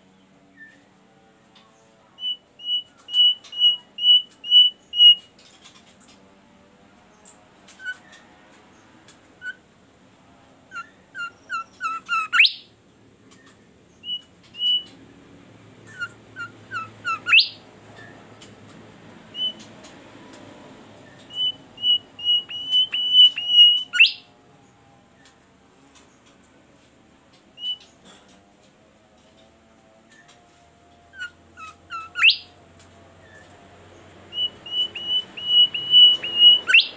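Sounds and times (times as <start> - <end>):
songbird chirping and whistling: 1.6 - 5.8, 7.7 - 8.2, 10.7 - 12.7, 13.3 - 15.1, 15.8 - 18.5, 19.3 - 24.3, 27.4 - 28.0, 31.1 - 32.6, 34.2 - 36.9.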